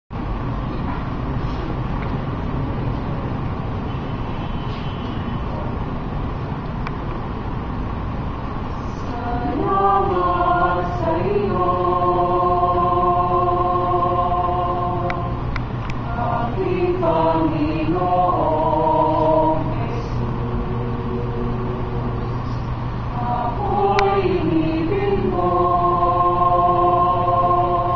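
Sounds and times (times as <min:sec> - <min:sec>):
steady low hum: 0:05.6 - 0:27.9
mixed choir singing in harmony: 0:08.7 - 0:27.9.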